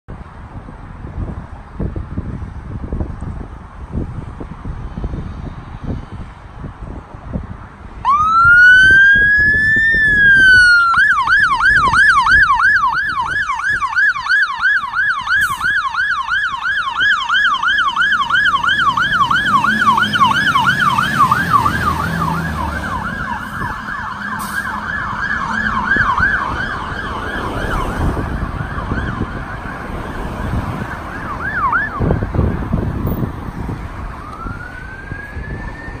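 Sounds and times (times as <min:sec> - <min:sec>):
truck engine rumbling: 0:00.1 - 0:36.0
fire engine siren wailing and yelping: 0:08.0 - 0:36.0.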